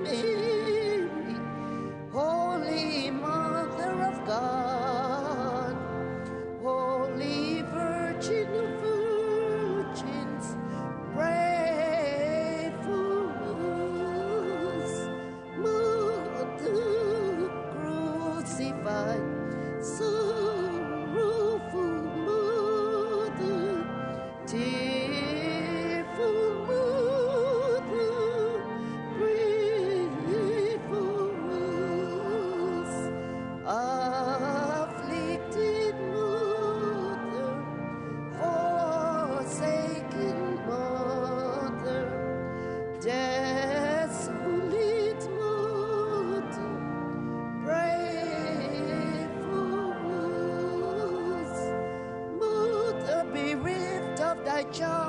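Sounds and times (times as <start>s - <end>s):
high voice singing with vibrato: 0.0s - 42.2s, 43.0s - 55.0s
held accompanying notes: 0.0s - 55.0s.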